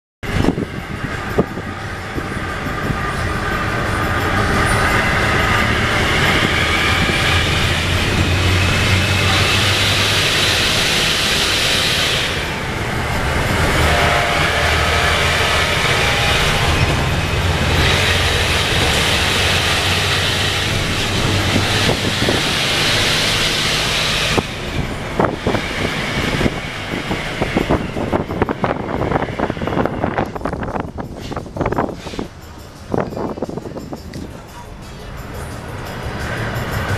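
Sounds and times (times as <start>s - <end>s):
bus diesel engine droning and whining: 0.2s - 36.9s.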